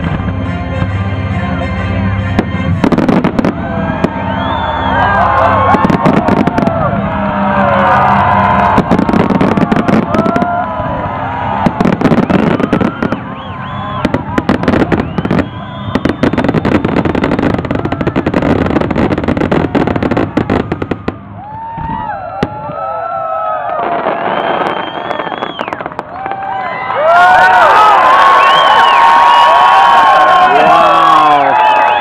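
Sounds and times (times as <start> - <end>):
fireworks bangs and crackling: 2.3 - 27.6.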